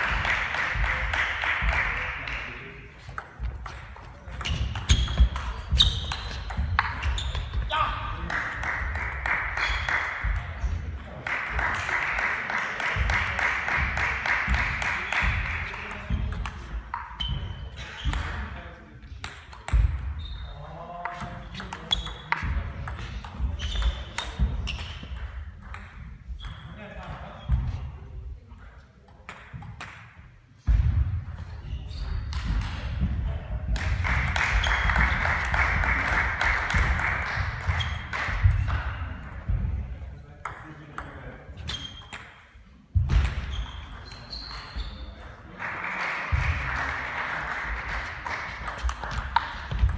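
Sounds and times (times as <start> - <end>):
table tennis balls clicking: 2.9 - 7.6, 21.0 - 26.7, 48.5 - 49.9.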